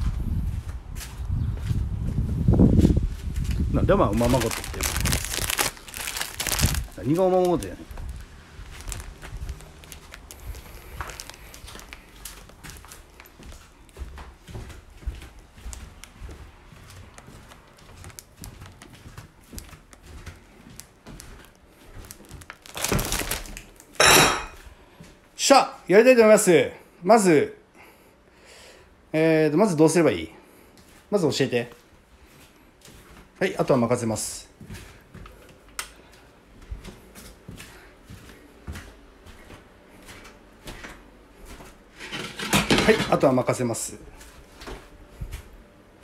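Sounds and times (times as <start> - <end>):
light footsteps: 0.0 - 25.3, 30.4 - 46.0
loud crinkling rustle: 3.4 - 13.8, 15.4 - 24.0.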